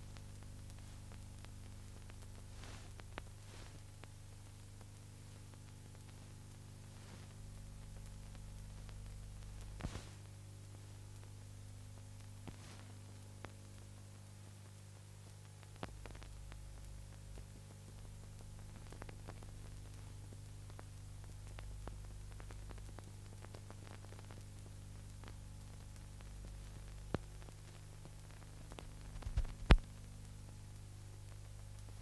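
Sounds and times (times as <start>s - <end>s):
faint hiss: 0.0s - 32.0s
low electrical hum: 0.0s - 32.0s
scattered clicks: 26.0s - 30.0s.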